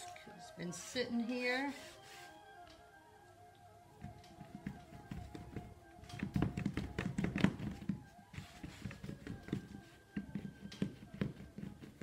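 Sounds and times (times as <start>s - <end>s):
quiet background music: 0.0s - 12.0s
hands rolling clay on canvas: 1.7s - 2.9s, 3.9s - 12.0s.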